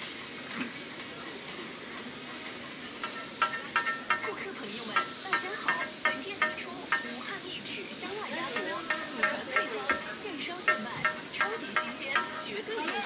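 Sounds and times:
squid sizzling on a griddle: 0:00.0 - 0:13.0.

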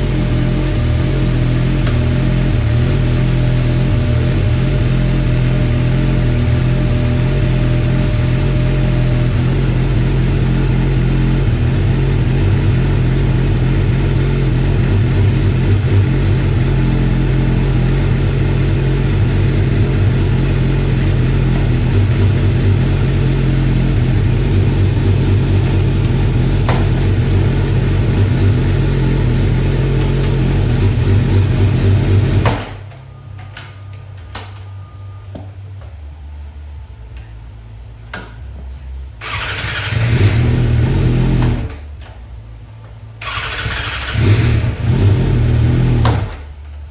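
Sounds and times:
motorcycle engine starting: 0:00.0 - 0:32.9, 0:39.2 - 0:42.1, 0:43.2 - 0:46.6.

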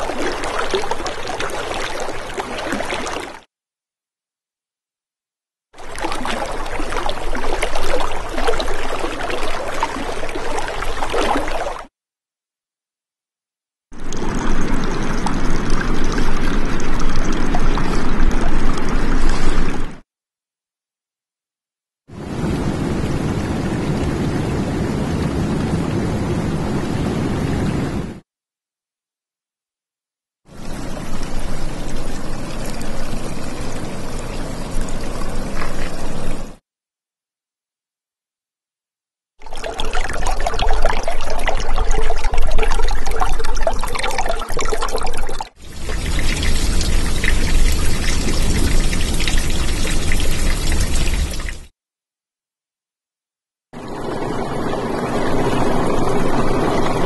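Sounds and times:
water pouring and trickling: 0:00.0 - 0:03.5, 0:05.8 - 0:11.9, 0:14.0 - 0:20.0, 0:30.5 - 0:36.6, 0:39.4 - 0:51.7, 0:53.8 - 0:57.0.

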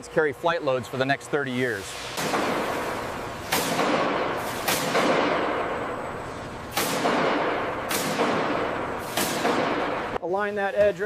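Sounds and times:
loud echoing bangs: 0:02.2 - 0:06.0, 0:06.7 - 0:10.2.

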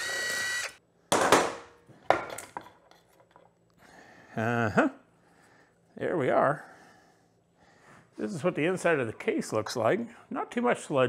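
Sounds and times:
power driver whine: 0:00.0 - 0:00.8.

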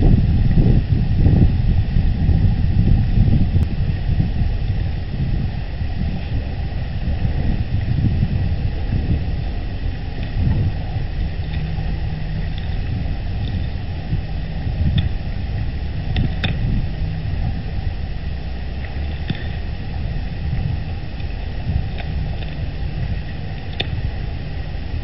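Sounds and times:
low wind rumble: 0:00.0 - 0:25.0.

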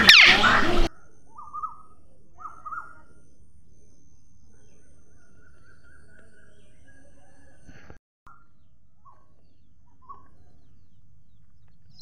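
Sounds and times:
parrot screeching: 0:00.0 - 0:00.7.

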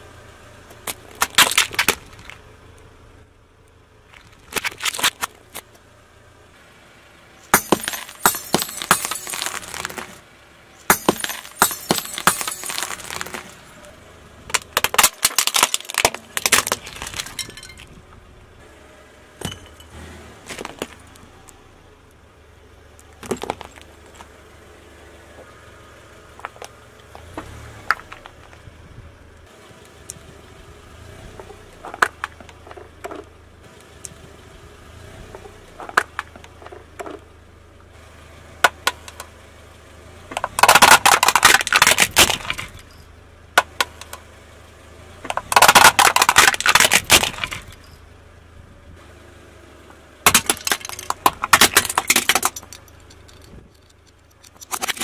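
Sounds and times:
tire crushing plastic objects: 0:00.0 - 0:05.8, 0:07.4 - 0:18.6, 0:19.4 - 0:22.2, 0:22.8 - 0:30.2, 0:31.2 - 0:33.4, 0:35.2 - 0:38.0, 0:38.6 - 0:39.4, 0:40.1 - 0:44.3, 0:45.0 - 0:48.1, 0:49.8 - 0:55.0
faint low engine hum: 0:00.0 - 0:55.0.

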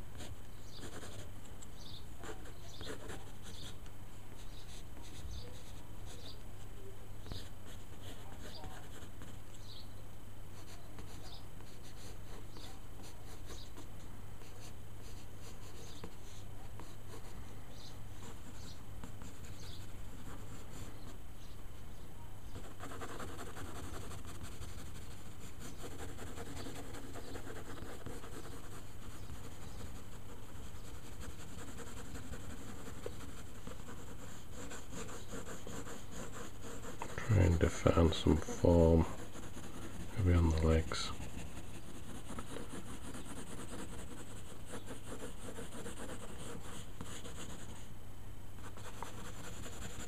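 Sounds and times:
steady low hum: 0:00.0 - 0:50.0
pencil sketching on paper: 0:22.6 - 0:47.7, 0:48.8 - 0:50.0.

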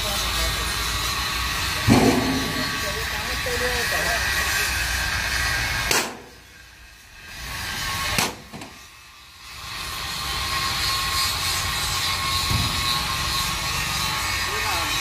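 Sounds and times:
machine noise with whine: 0:00.0 - 0:15.0
sharp knock: 0:01.9 - 0:02.8.

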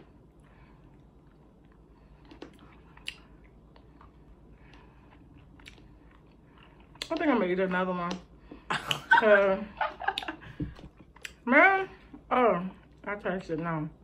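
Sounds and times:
people chewing: 0:00.2 - 0:07.2.

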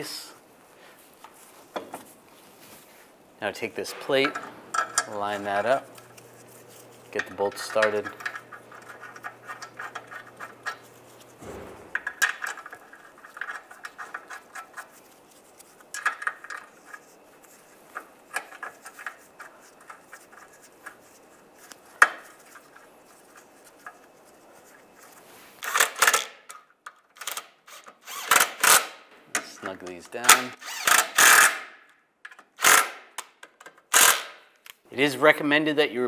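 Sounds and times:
metal bolts clinking and rattling: 0:04.0 - 0:06.1, 0:07.2 - 0:14.7.

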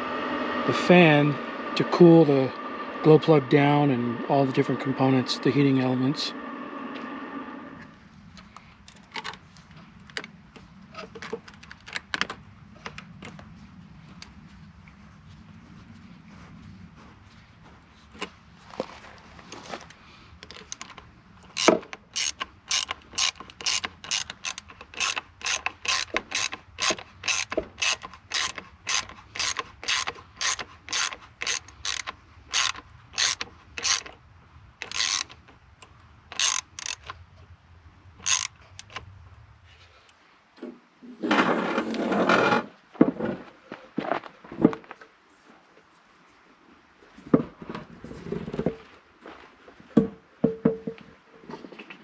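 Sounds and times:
hand ratchet clicking: 0:20.4 - 0:34.2, 0:34.8 - 0:35.5, 0:36.3 - 0:37.2, 0:38.2 - 0:39.0.

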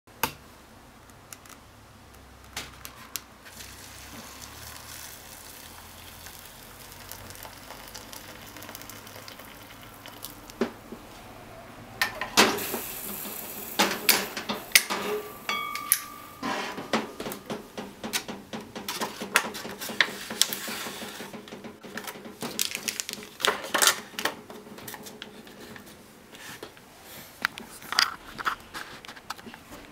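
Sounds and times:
faint steady hiss: 0:00.1 - 0:19.3
foil and plastic crinkling: 0:03.5 - 0:10.5, 0:21.9 - 0:24.3
hot water pouring into cup: 0:03.5 - 0:10.6, 0:12.1 - 0:14.9.

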